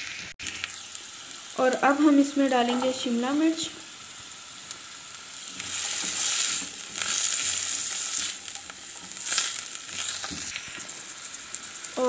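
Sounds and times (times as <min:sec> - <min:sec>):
vegetables sizzling in hot oil: 0:00.0 - 0:12.0
spatula stirring in a pan: 0:03.9 - 0:12.0.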